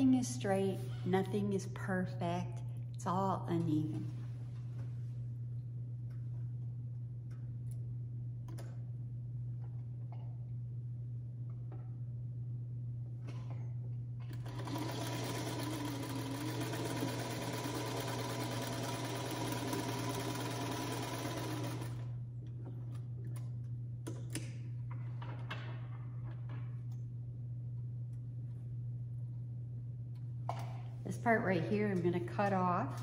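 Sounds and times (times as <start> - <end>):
sewing machine stitching: 14.3 - 22.1.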